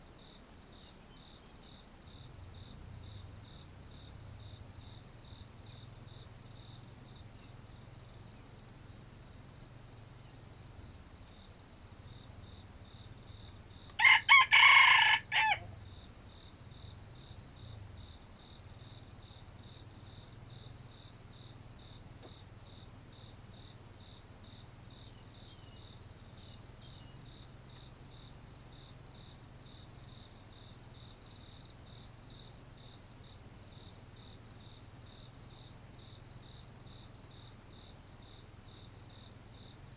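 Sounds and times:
crickets chirping: 0.0s - 39.9s
rooster crowing: 14.0s - 15.8s.

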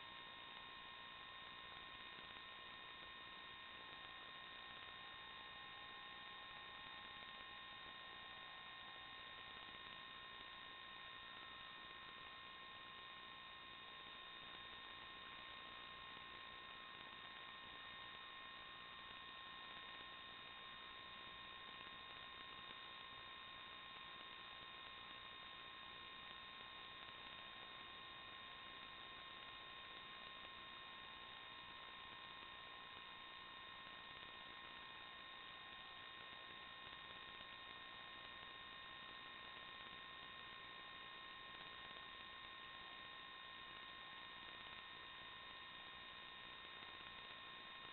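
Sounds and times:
faint electronic hiss: 0.0s - 47.9s
thin high whine tones: 0.0s - 47.9s.

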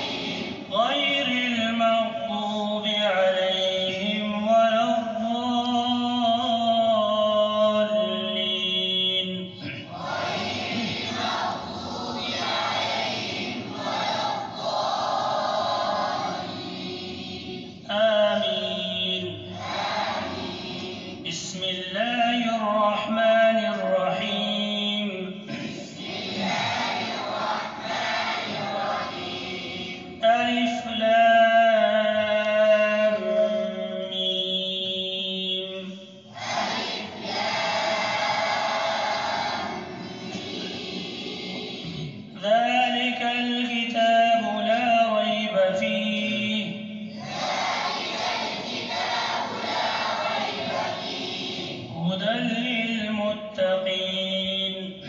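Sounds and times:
man reciting melodically: 0.0s - 11.1s, 15.3s - 27.8s, 28.4s - 36.4s, 41.8s - 47.2s, 51.8s - 55.0s
many voices calling out: 9.9s - 17.7s, 47.2s - 51.9s.

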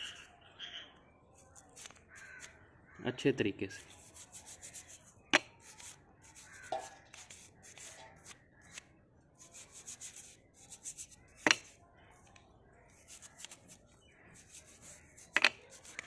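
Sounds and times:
toothbrush scrubbing metal: 3.8s - 8.4s, 9.4s - 11.8s, 13.0s - 13.8s, 14.4s - 16.0s.

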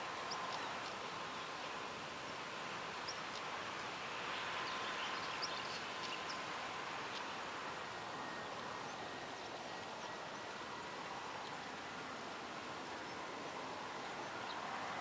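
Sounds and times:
faint bird chirps: 4.3s - 6.5s.

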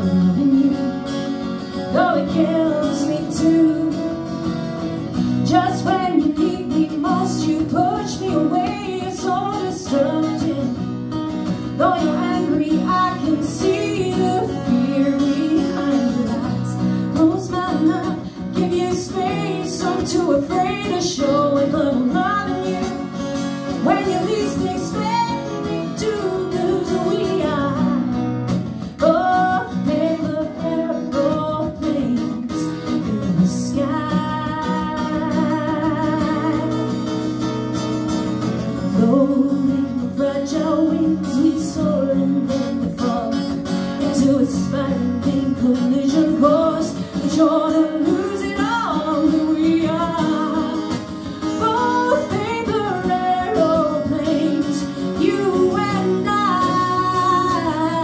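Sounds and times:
woman singing slow song: 0.0s - 37.2s, 38.7s - 58.0s
acoustic guitars: 0.0s - 58.0s.

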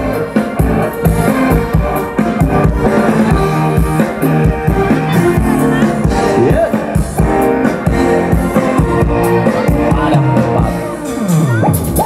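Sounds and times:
live pop band playing: 0.0s - 12.0s.

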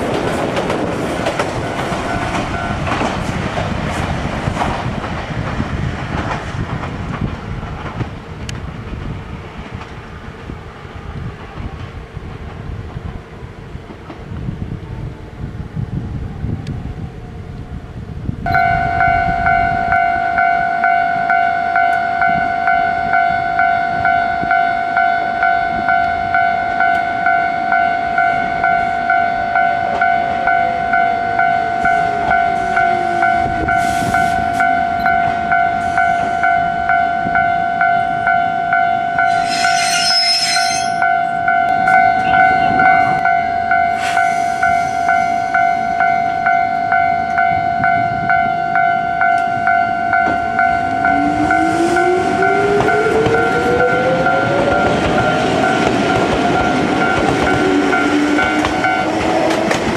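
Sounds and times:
level-crossing bell clanging: 18.5s - 59.7s.

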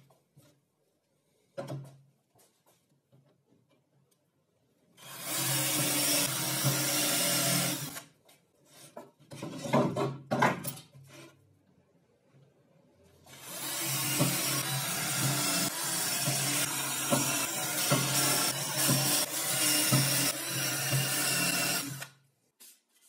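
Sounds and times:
cordless drill running: 5.0s - 8.0s, 13.3s - 22.2s.

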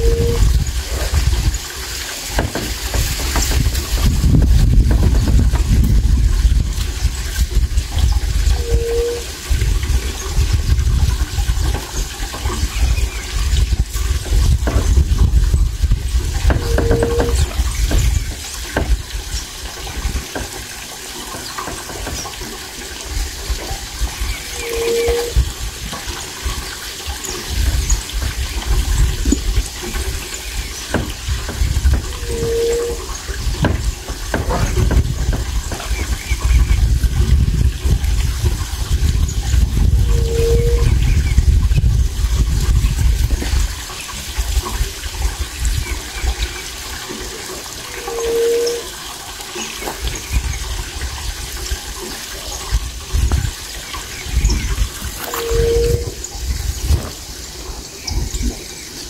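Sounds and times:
short low hoot: 0.0s - 0.5s, 24.6s - 25.4s, 32.2s - 33.1s
wind buffeting microphone: 0.0s - 58.8s.

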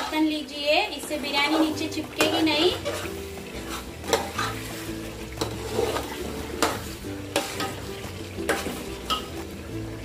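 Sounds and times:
food sizzling in a pot: 0.0s - 10.0s
ladle scraping metal pot: 1.1s - 9.6s.

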